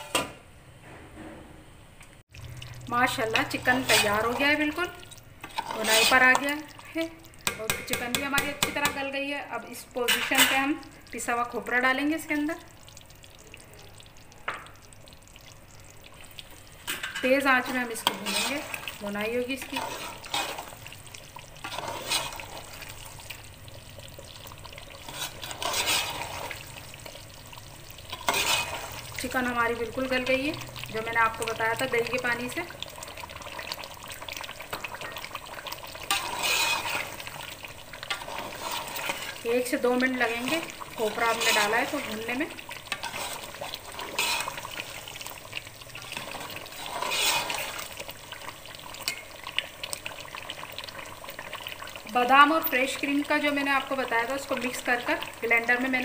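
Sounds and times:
gravy frying: 2.0 - 56.0
food sizzling in a pot: 2.2 - 56.0
utensil scraping a pot: 3.4 - 4.6, 5.4 - 6.5, 18.0 - 19.0, 19.6 - 20.8, 21.6 - 22.8, 25.0 - 26.7, 28.1 - 29.0, 36.0 - 39.4, 40.2 - 45.0, 46.0 - 47.9.

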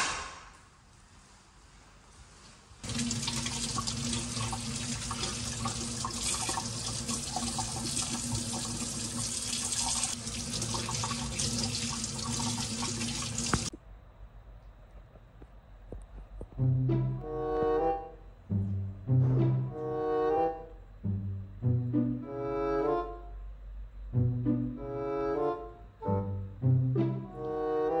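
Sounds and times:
tap water splashing in sink: 2.8 - 13.7.

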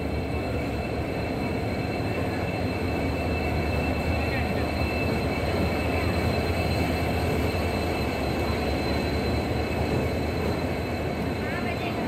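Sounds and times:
diesel locomotive rumbling past: 0.0 - 12.0.

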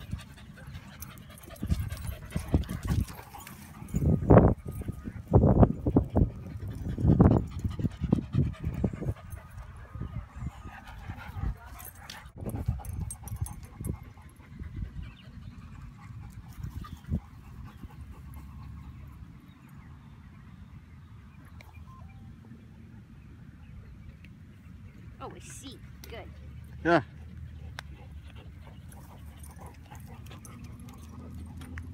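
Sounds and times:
dog panting: 0.0 - 19.0, 26.6 - 31.9.

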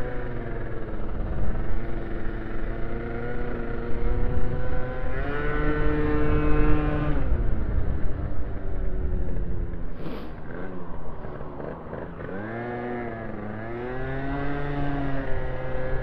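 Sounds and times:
moped engine revving: 10.0 - 16.0.

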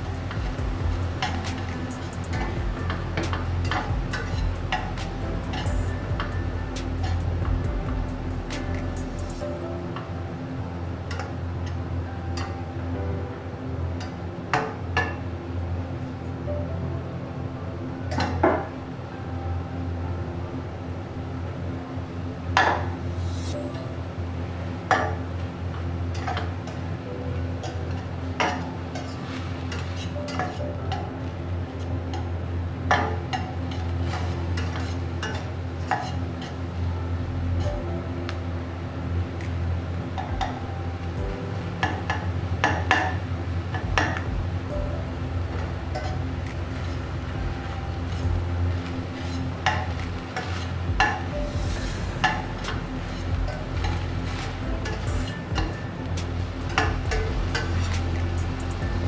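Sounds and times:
steady low hum: 0.0 - 59.0
metal spatula scraping pan: 33.7 - 36.6.

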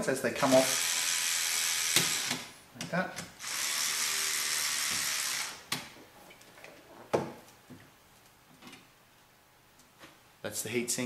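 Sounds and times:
electric screwdriver running: 0.6 - 2.5, 3.4 - 5.6.

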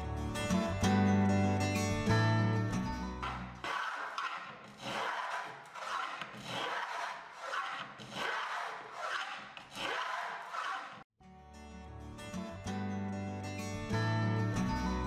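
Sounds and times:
wooden plane cutting wood: 3.2 - 11.1.

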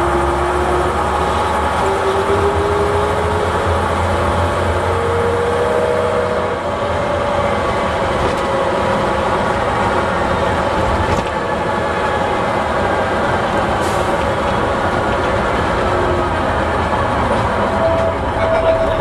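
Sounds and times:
bus engine running: 0.0 - 19.0.

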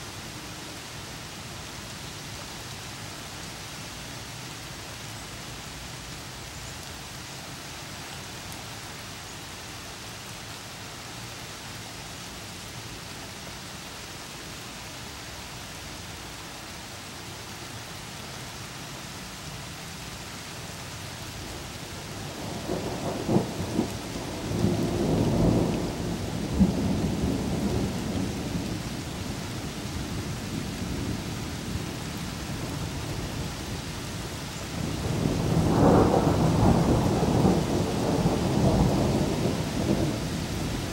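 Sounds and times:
steady rain: 0.0 - 40.9
thunder rolling and cracking: 34.9 - 40.2.

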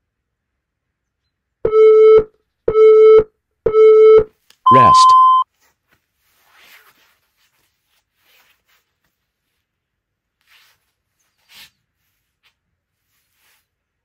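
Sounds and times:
timer beep: 1.7 - 5.4
rustling on exercise mat: 5.5 - 14.0.

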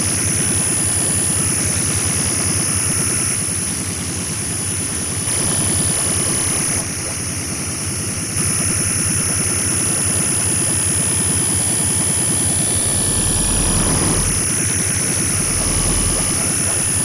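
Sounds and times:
fast low electronic pulsing: 12.5 - 17.0.

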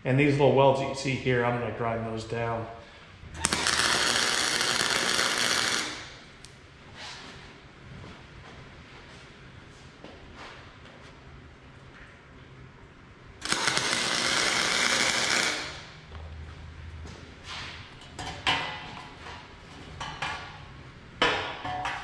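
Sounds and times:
welding arc crackle and hiss: 3.4 - 6.6, 13.4 - 16.0
metal horseshoes clanking on table: 21.2 - 22.0.

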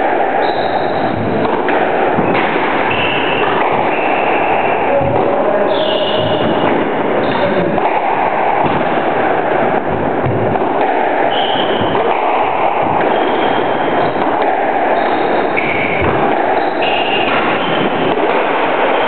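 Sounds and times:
squash ball hitting rackets and walls: 0.0 - 19.0
steady loud rushing noise: 0.0 - 19.0
shoes squeaking on wooden floor: 5.6 - 7.4, 13.1 - 14.2.

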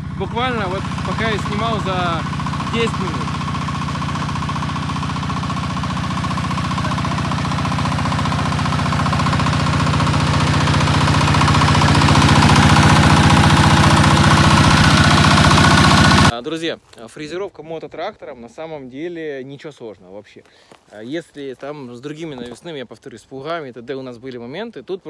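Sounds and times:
diesel tractor engine knocking: 0.0 - 16.3
rotary tiller: 0.0 - 16.3.

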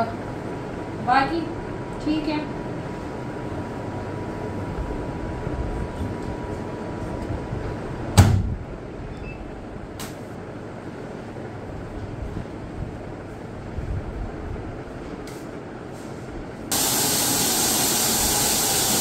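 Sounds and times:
steady low rumble: 0.0 - 9.0, 10.7 - 15.2.

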